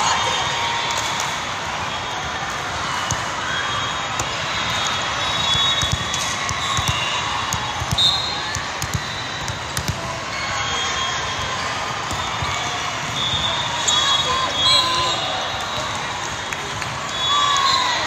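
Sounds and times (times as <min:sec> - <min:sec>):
din of crowd and play: 0:00.0 - 0:18.0
volleyballs struck with thuds: 0:05.5 - 0:10.1.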